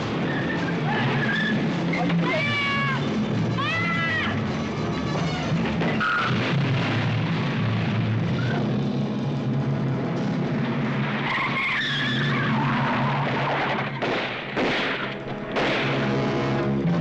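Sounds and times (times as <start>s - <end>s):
car engine running hard: 0.0s - 17.0s
tyres squealing: 0.2s - 6.4s, 11.2s - 14.0s.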